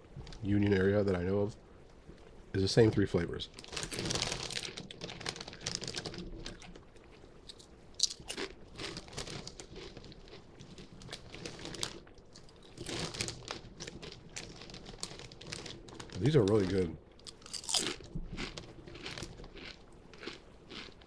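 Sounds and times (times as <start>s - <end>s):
potato chip crunching: 3.6s - 6.8s, 7.5s - 21.0s.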